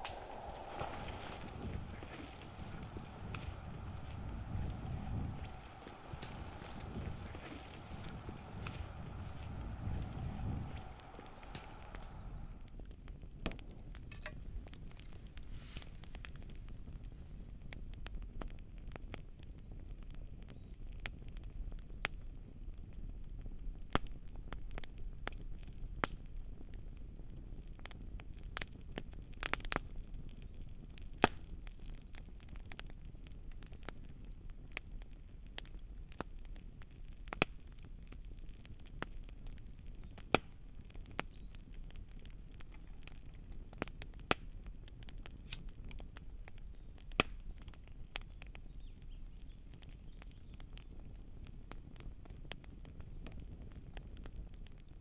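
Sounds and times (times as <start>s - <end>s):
low steady rumble: 0.0s - 16.7s
campfire crackling: 0.0s - 55.0s.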